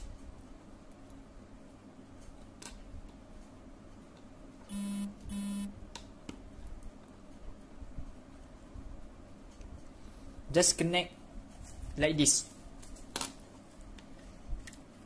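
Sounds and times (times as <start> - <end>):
short electronic beeps: 4.7 - 5.7.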